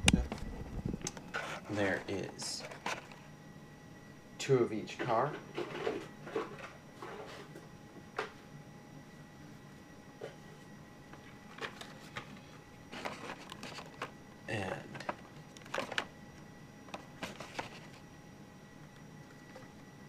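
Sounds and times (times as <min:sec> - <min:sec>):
plastic blister packs clicking and crinkling: 0:11.5 - 0:14.2, 0:14.9 - 0:16.2.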